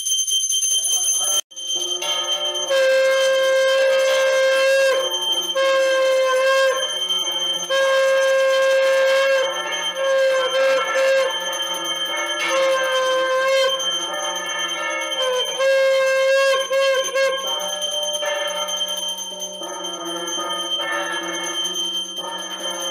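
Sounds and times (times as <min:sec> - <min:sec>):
small hand bell ringing: 0:00.0 - 0:22.9
wind instrument melody: 0:02.6 - 0:11.4, 0:12.4 - 0:13.9, 0:15.1 - 0:17.8.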